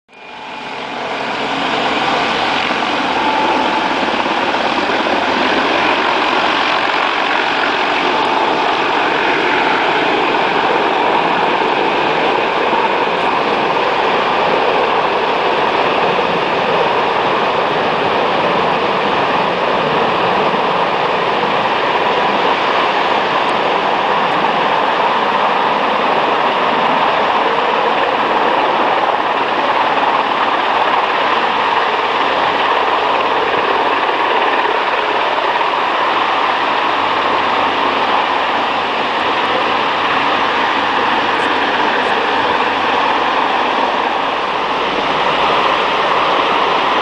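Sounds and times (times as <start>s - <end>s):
helicopter rotor and turbines: 0.1s - 47.0s.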